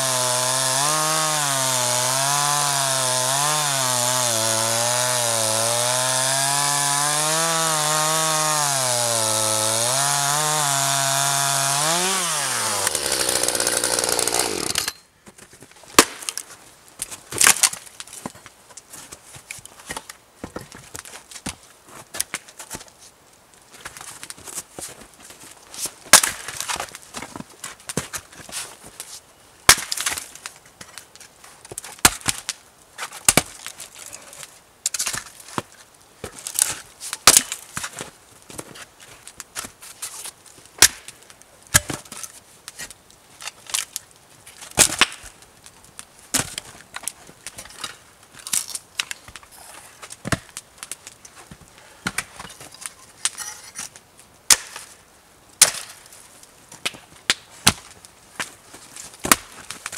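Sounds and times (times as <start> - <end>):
axe splitting firewood: 0.0 - 15.0, 16.0 - 16.4, 26.1 - 27.0, 29.7 - 30.5, 31.7 - 35.7, 36.3 - 38.0, 40.8 - 44.0, 44.7 - 45.4, 46.3 - 54.9, 55.6 - 56.1, 56.8 - 58.0, 59.1 - 59.9.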